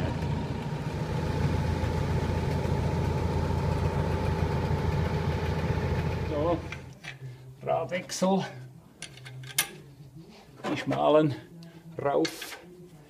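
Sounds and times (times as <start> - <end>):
tractor diesel engine running: 0.0 - 6.9.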